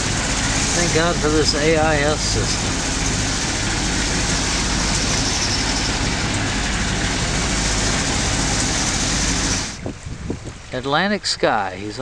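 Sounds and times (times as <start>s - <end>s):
boat engine drone: 0.0s - 12.0s
wind and water rushing: 0.0s - 12.0s.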